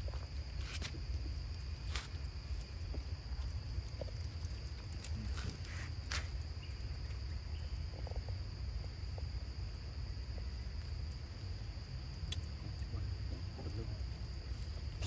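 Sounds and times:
faint clicks: 0:12.1 - 0:12.9.

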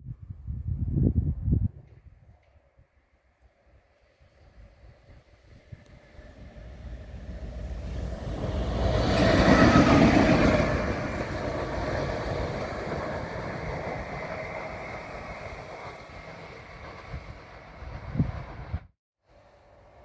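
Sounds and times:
locomotive wheels rumbling on rails: 0:03.6 - 0:18.9.

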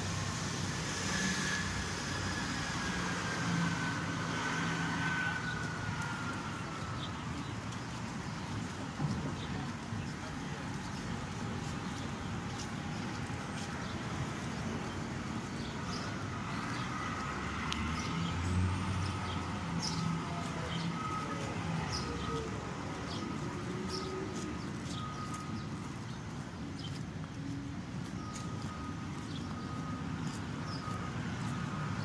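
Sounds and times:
cars and trucks passing: 0:00.0 - 0:32.0.

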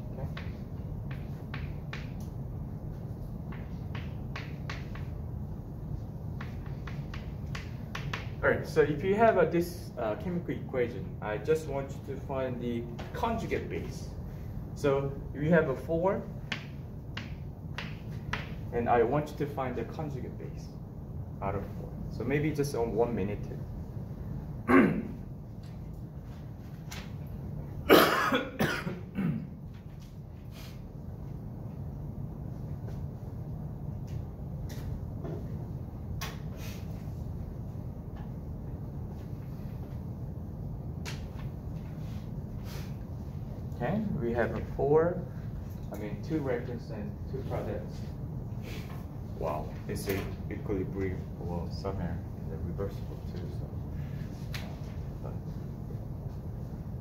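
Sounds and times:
low room hum: 0:00.0 - 0:57.0
chalk tapping and scraping: 0:00.2 - 0:05.3, 0:06.2 - 0:08.4, 0:16.4 - 0:18.7
person coughing: 0:24.6 - 0:25.2, 0:27.9 - 0:29.6.

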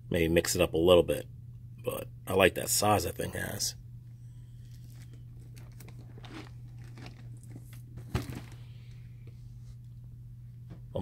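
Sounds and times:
steady low hum: 0:00.0 - 0:11.0
plastic wrap crinkling: 0:04.6 - 0:08.7.

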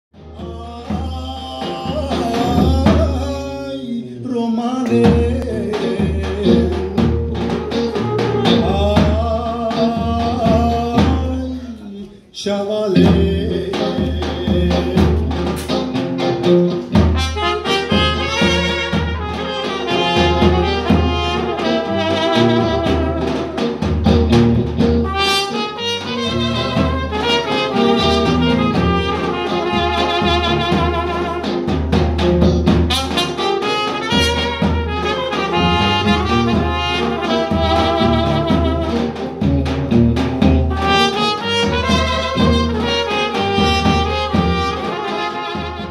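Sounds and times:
bass and drum beat: 0:00.2 - 0:03.6, 0:04.8 - 0:11.7, 0:13.0 - 0:45.9
trumpet and saxophone melody: 0:00.2 - 0:03.7, 0:04.8 - 0:11.4, 0:13.0 - 0:45.9.

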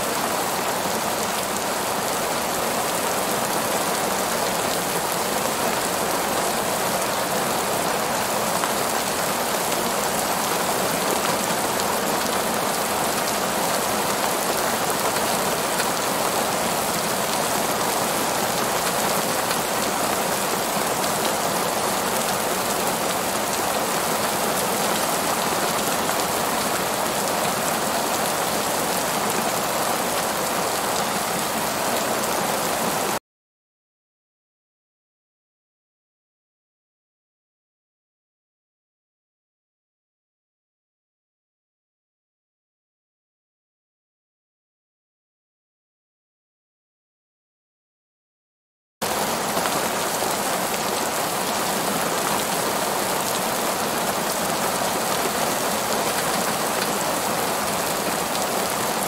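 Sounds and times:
heavy rain on pavement: 0:00.0 - 0:33.2, 0:49.0 - 0:59.0.

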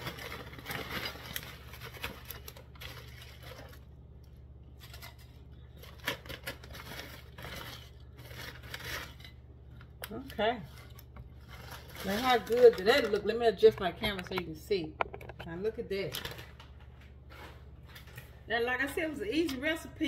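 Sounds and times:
chip bag crinkling: 0:00.0 - 0:13.8, 0:15.9 - 0:16.7.

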